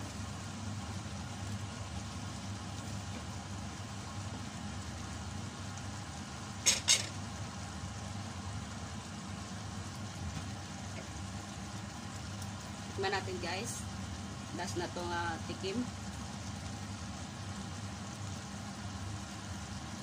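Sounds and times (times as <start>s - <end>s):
pot simmering: 0.0s - 20.0s.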